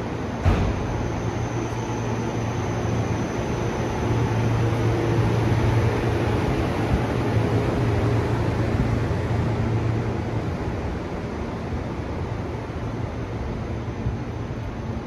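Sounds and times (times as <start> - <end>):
faint high whine: 0.2 - 10.6
brief thump: 0.4 - 1.0.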